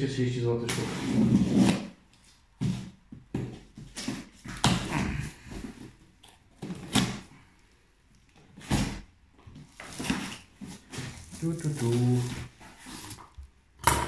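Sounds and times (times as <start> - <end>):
rummaging in cardboard carton: 8.5 - 13.3.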